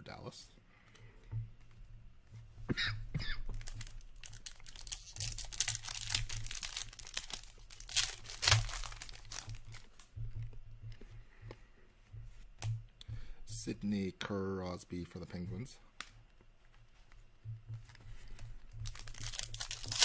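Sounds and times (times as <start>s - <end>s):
cards rustling: 3.4s - 11.6s, 16.0s - 20.0s
wrapper tearing and crinkling: 3.5s - 10.1s, 18.3s - 20.0s.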